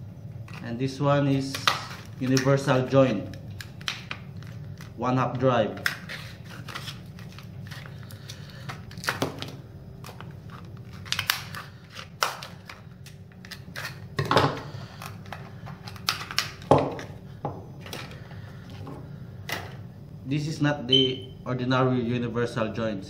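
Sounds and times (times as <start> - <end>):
packaging being torn and crinkled: 1.4 - 5.0, 5.8 - 17.1.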